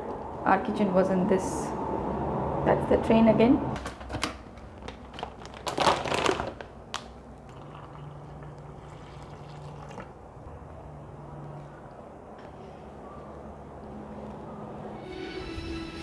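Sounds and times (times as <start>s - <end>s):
plastic sachets crinkling: 4.6s - 7.3s
water pouring into mug: 7.5s - 10.2s.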